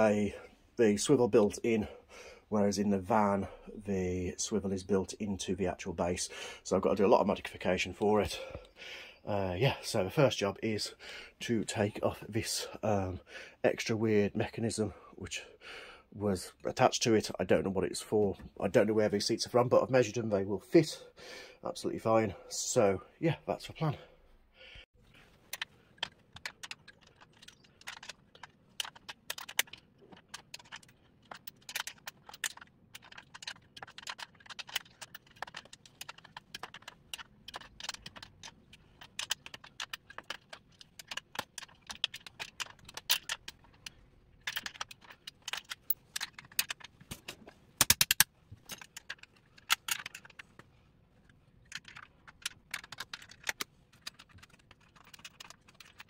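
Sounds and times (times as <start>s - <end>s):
metallic clicks and rattles of tools: 25.1s - 56.0s.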